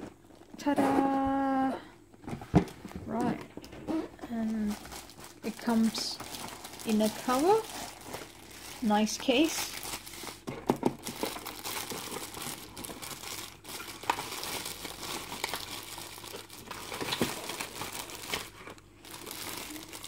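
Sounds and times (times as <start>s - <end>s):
plastic bag crinkling: 4.1s - 20.0s.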